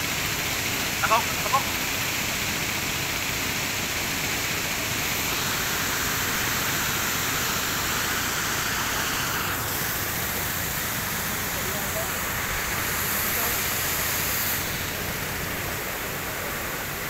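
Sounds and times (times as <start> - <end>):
river water rushing: 3.8 - 17.0.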